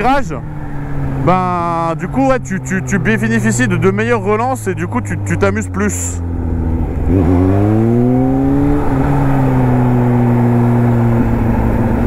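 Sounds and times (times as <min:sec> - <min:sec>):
motorcycle engine pulling hard: 0:00.7 - 0:12.0.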